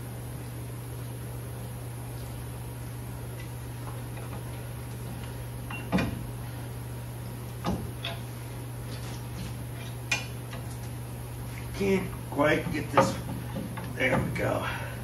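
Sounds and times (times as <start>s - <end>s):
steady low hum: 0.0s - 15.0s
metal clanks and knocks: 12.6s - 14.5s.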